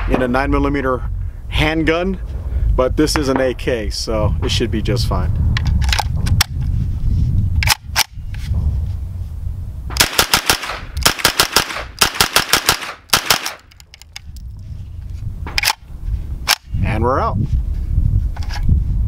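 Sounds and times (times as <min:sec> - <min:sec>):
rapid pistol shots: 0:10.0 - 0:13.7.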